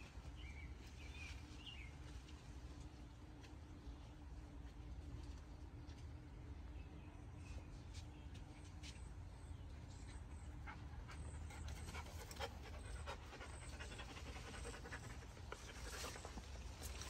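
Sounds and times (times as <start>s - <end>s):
dog panting: 10.6s - 17.0s.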